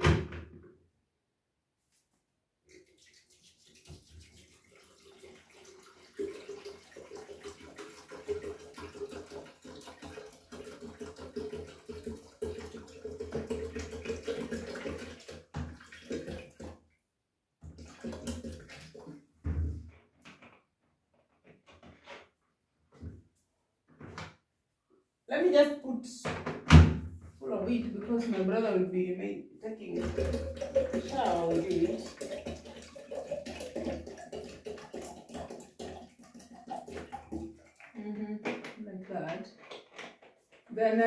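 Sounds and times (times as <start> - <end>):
water pouring into kettle: 2.7 - 16.7, 17.8 - 19.1, 29.8 - 38.0.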